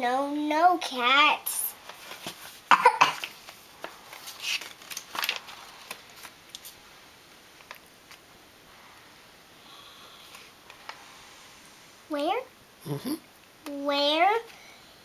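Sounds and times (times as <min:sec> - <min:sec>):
book pages rustling: 0:01.8 - 0:06.8.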